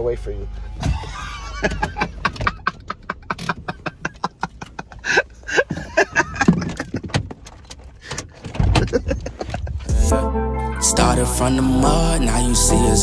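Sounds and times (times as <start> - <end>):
belongings handled in a car: 0.5 - 9.9.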